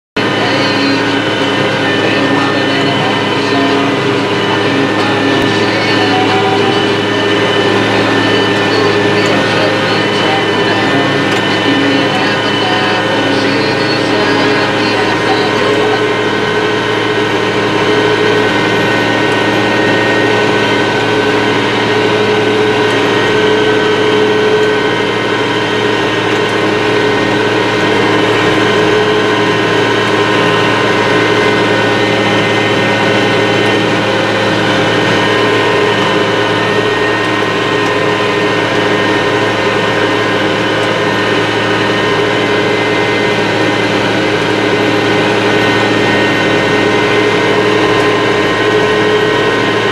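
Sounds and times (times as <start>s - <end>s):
tractor diesel engine droning: 0.0s - 49.9s.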